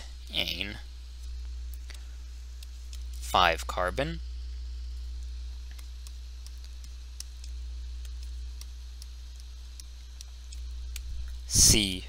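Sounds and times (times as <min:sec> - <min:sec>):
low electrical hum: 0:00.0 - 0:12.0
faint ticks: 0:01.2 - 0:03.3, 0:04.8 - 0:11.5.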